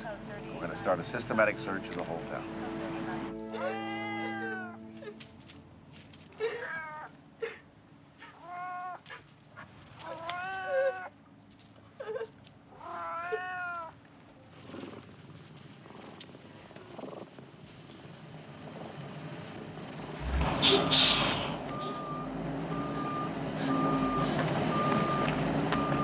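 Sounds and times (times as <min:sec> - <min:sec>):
cat meowing: 0:03.5 - 0:04.9, 0:06.4 - 0:07.1, 0:08.2 - 0:09.2, 0:10.0 - 0:11.1, 0:12.7 - 0:14.0.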